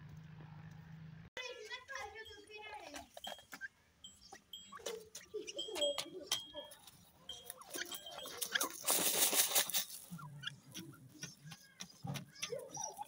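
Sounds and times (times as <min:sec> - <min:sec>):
loud rustling burst: 0:08.7 - 0:10.1.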